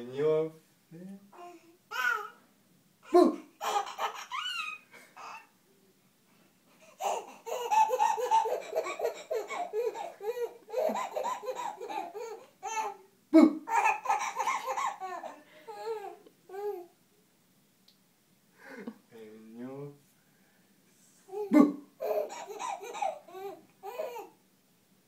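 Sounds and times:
baby laughing: 1.9s - 2.3s, 3.1s - 5.5s, 6.9s - 16.9s, 21.3s - 24.4s.

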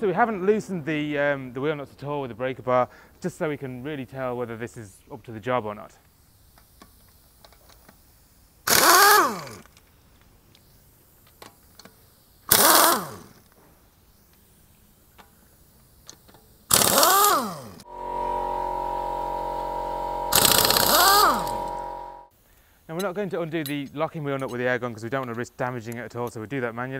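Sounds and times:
air impact gun bursts: 8.6s - 9.6s, 12.5s - 13.4s, 16.7s - 22.3s
air motor whine spinning down: 16.7s - 22.3s
steady multi-pitch hum: 17.8s - 22.3s.

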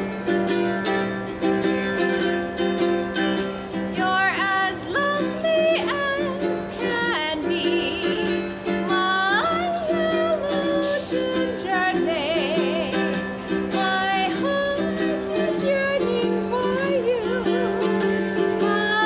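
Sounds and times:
ukulele strumming: 0.0s - 19.0s
woman singing with vibrato: 3.9s - 19.0s.

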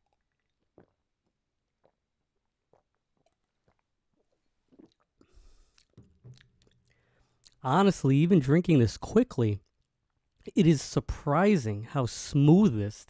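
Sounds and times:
man gulping a drink: 0.0s - 7.6s.

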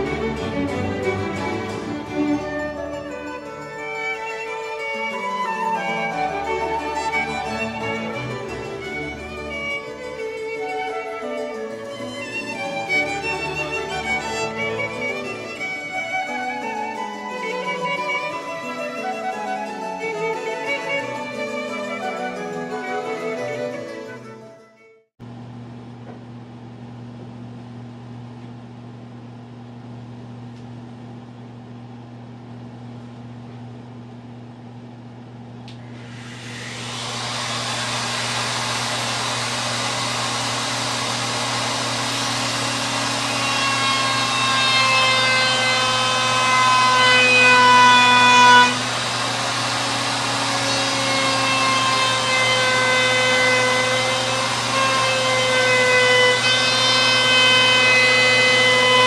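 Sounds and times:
handheld router whining: 0.0s - 10.9s, 35.7s - 59.0s.

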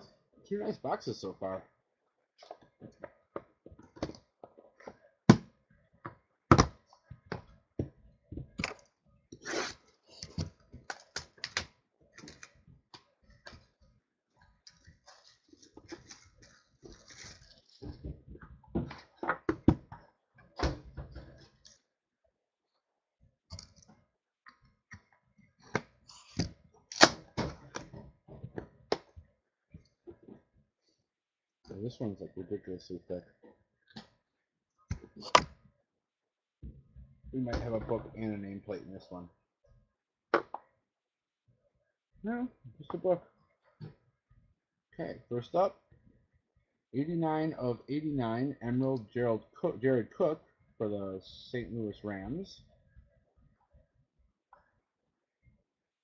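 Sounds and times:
plastic wrap crinkling: 14.8s - 17.8s.

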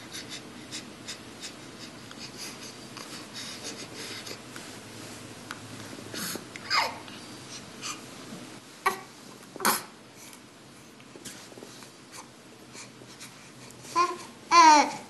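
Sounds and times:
baby grunting and snorting: 8.8s - 9.9s.

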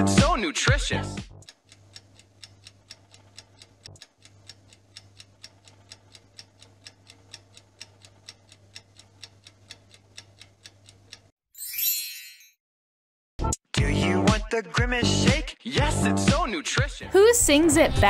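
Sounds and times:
countdown timer ticking: 0.0s - 11.3s.

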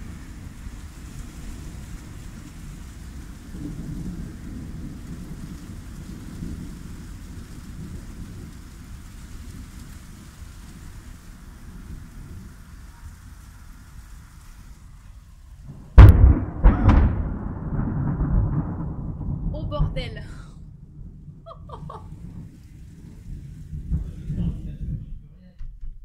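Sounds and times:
steady rain: 0.0s - 25.4s
thunder rolling: 0.0s - 26.0s.

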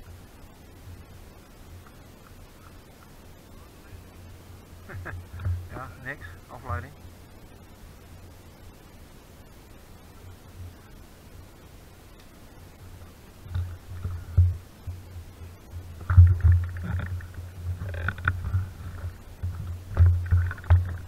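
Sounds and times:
camera jostling thumps and knocks: 16.0s - 21.0s.

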